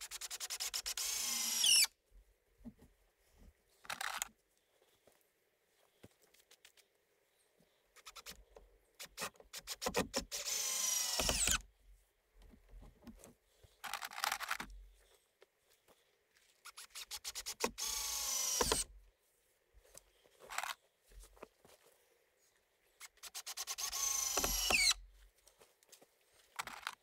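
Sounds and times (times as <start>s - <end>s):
cordless drill clicking: 0.1s - 1.9s, 9.0s - 11.7s, 17.0s - 18.9s, 23.2s - 25.0s
drill motor running: 0.6s - 1.9s, 10.3s - 11.6s, 17.2s - 18.9s, 23.4s - 25.0s.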